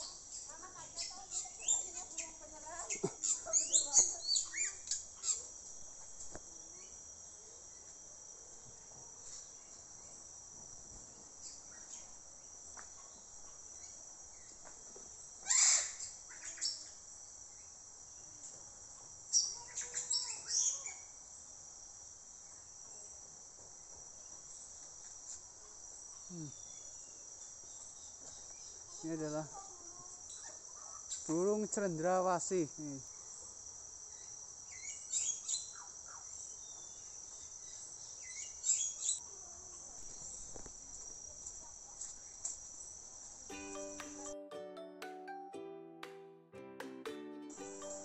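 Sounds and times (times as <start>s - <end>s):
birds chirping: 0.0s - 5.4s
insects droning: 0.0s - 44.2s, 47.4s - 48.0s.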